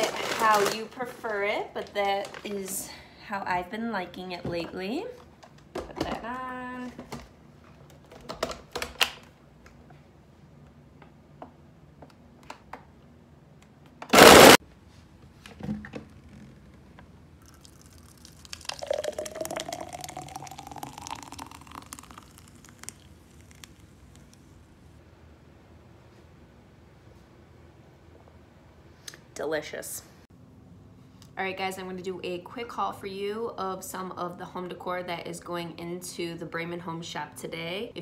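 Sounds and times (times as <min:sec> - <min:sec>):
blender running: 0:14.2 - 0:14.6
smoothie pouring into tumbler: 0:17.3 - 0:24.5.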